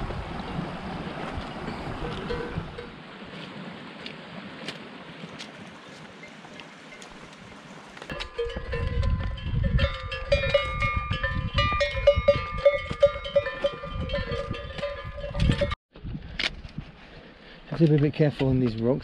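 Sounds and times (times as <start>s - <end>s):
cow bell clanking: 1.5s - 3.0s, 8.1s - 15.8s.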